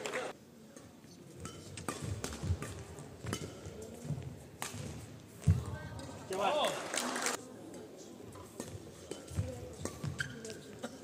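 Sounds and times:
rackets hitting shuttlecock: 1.3s - 6.5s, 8.3s - 10.8s.

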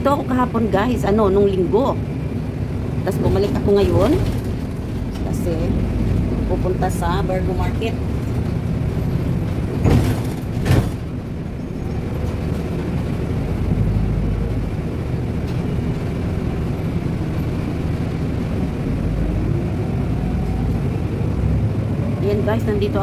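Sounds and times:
vehicle engine and road rumble: 0.0s - 23.0s.

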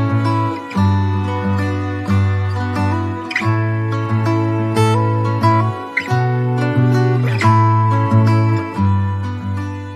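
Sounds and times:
plucked-string background music: 0.0s - 9.9s.

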